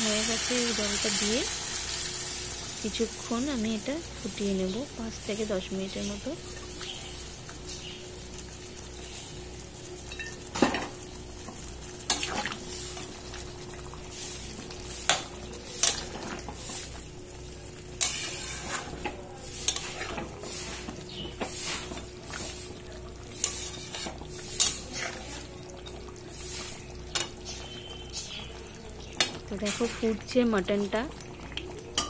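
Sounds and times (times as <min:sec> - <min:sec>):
curry bubbling: 0:00.0 - 0:32.0
metal spatula scraping metal pot: 0:18.0 - 0:22.6, 0:23.3 - 0:25.3.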